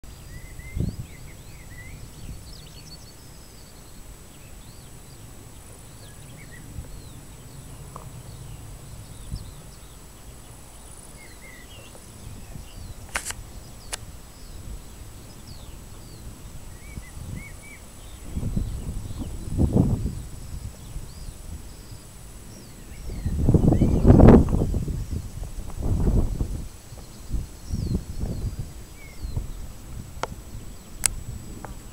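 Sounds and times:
wind rumble on microphone: 0.0s - 31.9s
small birds chirping: 0.1s - 31.9s
sharp clicks: 13.0s - 14.1s.

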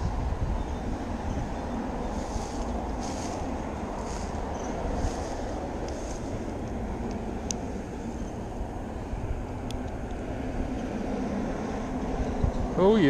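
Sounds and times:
faint engine hum: 0.0s - 13.0s
road traffic rumble: 0.0s - 13.0s.

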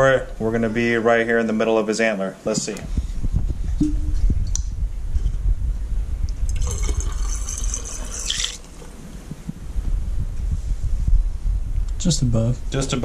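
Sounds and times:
low rumble: 2.8s - 7.8s, 8.8s - 13.0s
liquid pouring into a can: 6.5s - 9.0s.

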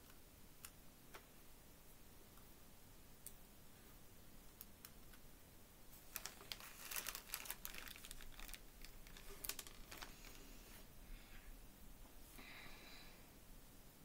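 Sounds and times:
plastic bag crinkling: 6.0s - 10.6s
plastic beads clicking and rattling: 6.1s - 10.4s.

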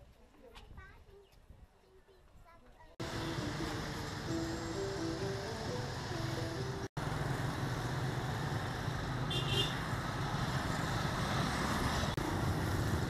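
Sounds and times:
motorbike and car engines: 3.0s - 13.0s
road hiss: 3.0s - 13.0s.

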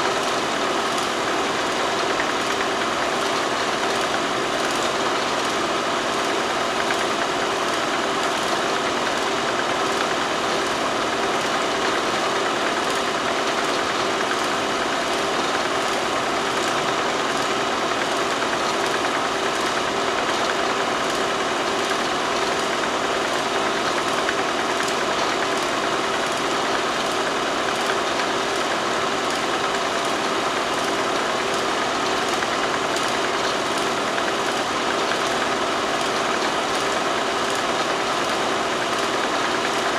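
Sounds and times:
machine whirring and humming: 0.0s - 39.9s.

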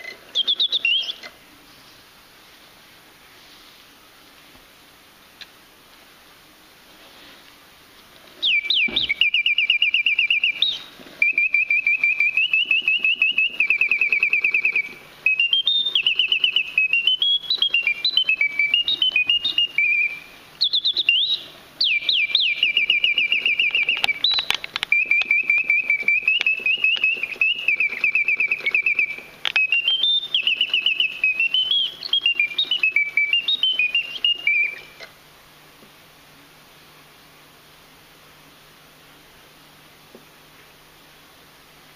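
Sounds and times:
mechanical bird whistling trills: 0.0s - 1.3s, 8.4s - 35.1s.

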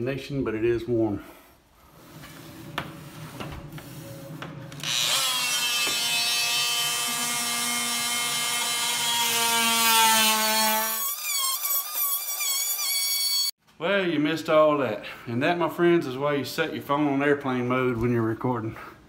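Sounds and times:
multi-tool cutting sheetrock: 3.7s - 13.6s.

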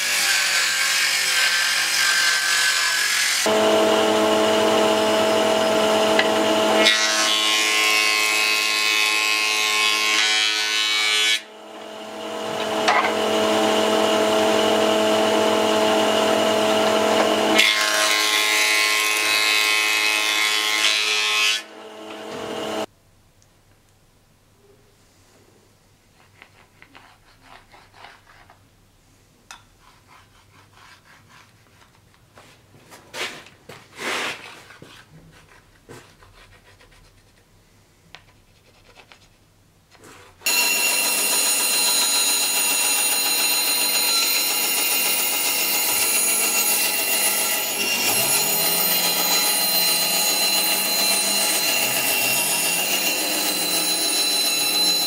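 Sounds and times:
bandsaw cutting wood: 0.0s - 22.9s, 40.4s - 55.0s.

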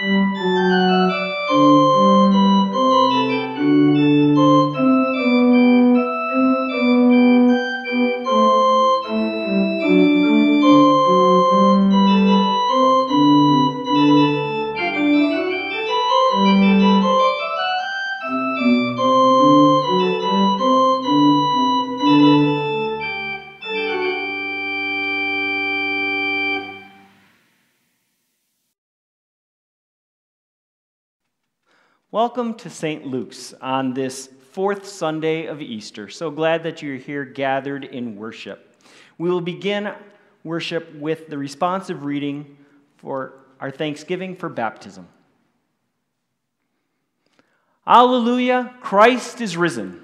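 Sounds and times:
organ music: 0.0s - 27.8s, 47.9s - 50.0s.

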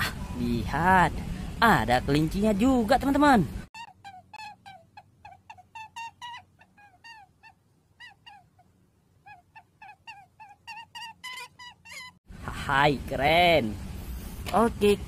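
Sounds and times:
faint steady hum: 0.0s - 15.0s
bird chirping: 3.8s - 12.2s.

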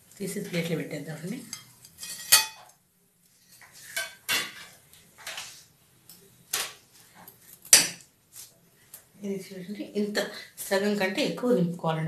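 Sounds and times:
metal kitchen utensils clinking: 1.5s - 2.7s.

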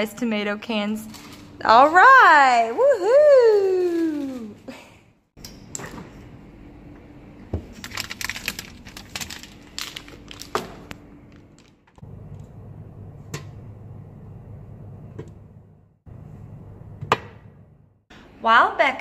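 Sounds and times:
clicks and knocks of groceries: 7.5s - 12.0s
plastic packaging crinkling: 7.7s - 12.0s.

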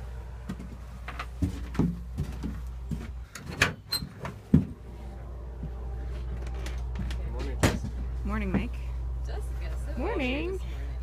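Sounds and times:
doors opening and closing: 3.2s - 8.0s
steady low rumble: 4.4s - 11.0s.

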